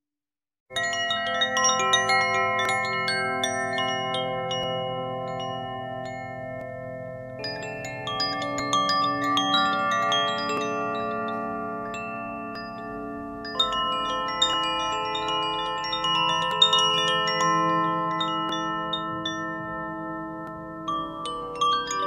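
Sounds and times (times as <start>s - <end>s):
metal chimes ringing: 0.7s - 22.0s.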